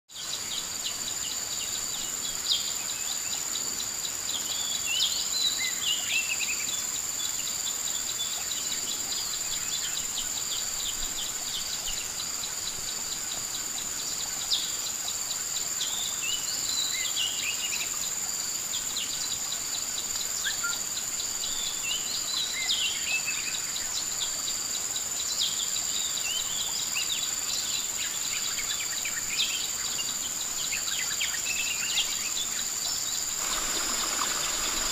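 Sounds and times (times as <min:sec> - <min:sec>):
insects droning: 0:00.1 - 0:34.9
bird chirping: 0:18.8 - 0:34.9.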